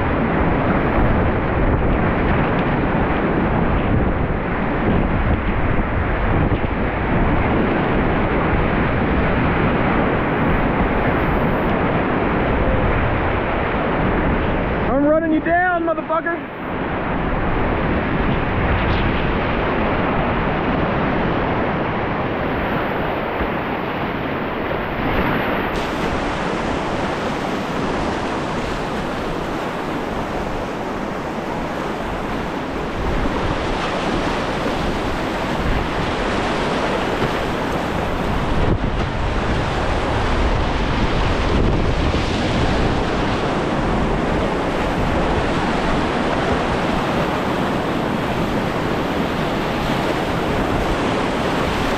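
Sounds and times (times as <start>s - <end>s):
wind buffeting on microphone: 0.0s - 51.9s
whitewater rapids rushing: 18.5s - 51.9s.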